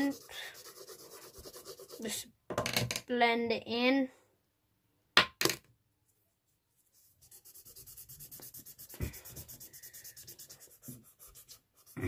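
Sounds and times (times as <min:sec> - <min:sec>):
rubbing on drawing paper: 0:00.0 - 0:02.2, 0:06.8 - 0:12.0.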